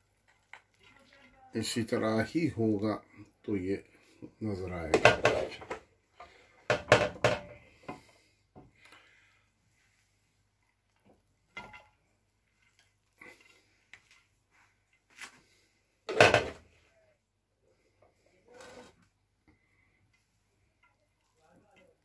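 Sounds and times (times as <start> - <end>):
plate scraping metal pot: 18.5 - 19.0.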